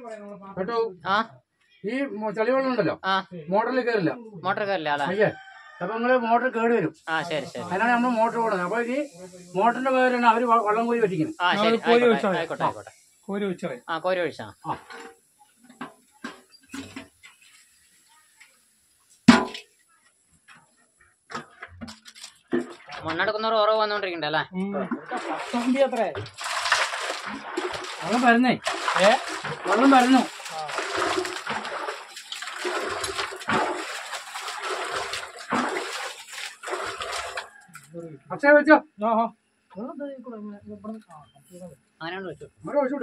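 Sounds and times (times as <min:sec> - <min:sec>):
water gushing and splashing: 0:22.4 - 0:23.2, 0:24.8 - 0:37.8.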